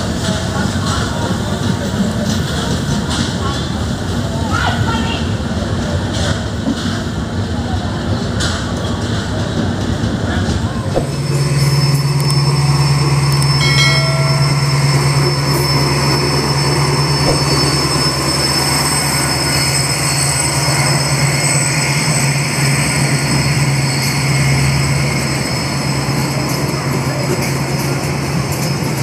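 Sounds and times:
train wheels rumbling on rail: 0.0 - 29.0
high ringing: 11.0 - 22.2.

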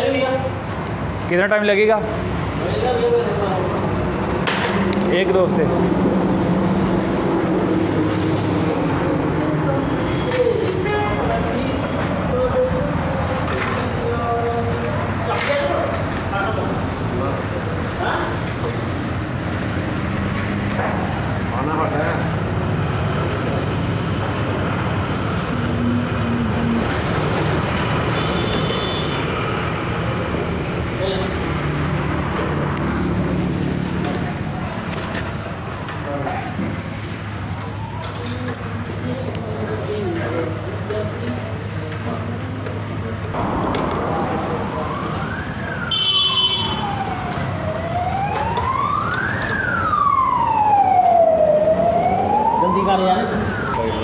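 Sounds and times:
road traffic rumble: 0.0 - 54.0
workshop background noise: 0.0 - 54.0
wailing siren: 37.4 - 39.0, 43.4 - 54.0.

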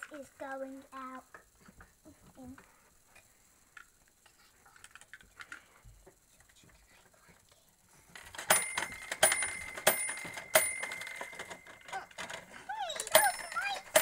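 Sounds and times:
plastic toy pieces clicking: 8.2 - 14.0
steady ringing tone: 8.2 - 14.0
loud sharp toy clicks: 8.3 - 14.0.

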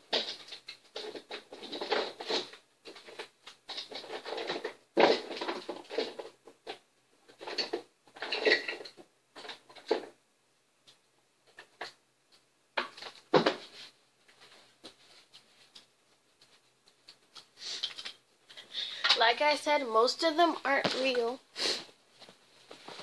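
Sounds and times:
rummaging through plastic toys: 0.0 - 10.2, 12.8 - 19.6.

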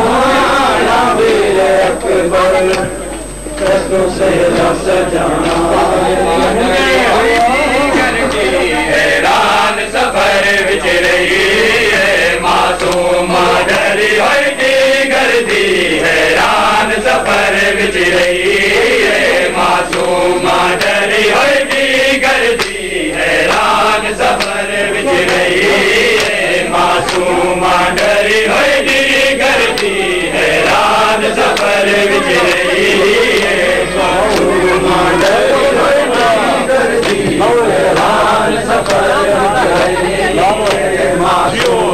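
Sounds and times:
men chanting together: 0.0 - 41.9
chest-beating slaps: 12.8 - 13.1, 27.0 - 27.3, 30.7 - 31.8.

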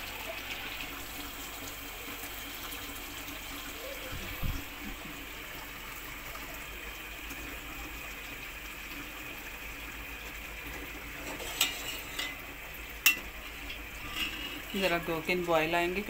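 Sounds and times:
milk pot hissing on stove: 0.0 - 16.0
metal ladle clinking on pot: 11.3 - 12.4, 13.0 - 13.3.

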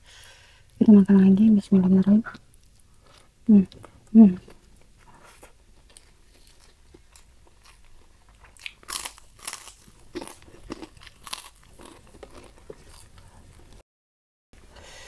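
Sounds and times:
cracker crunching: 4.5 - 13.8.

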